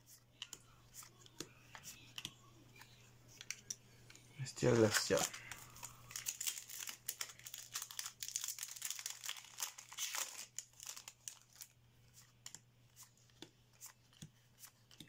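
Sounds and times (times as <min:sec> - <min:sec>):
cards flipped by hand: 0:00.1 - 0:15.0
foil wrapper crinkling: 0:04.7 - 0:11.7.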